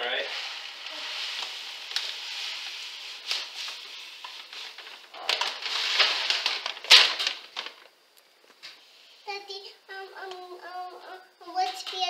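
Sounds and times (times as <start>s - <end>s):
fat sizzling: 0.0s - 9.6s
clicks and crackles: 0.8s - 8.8s.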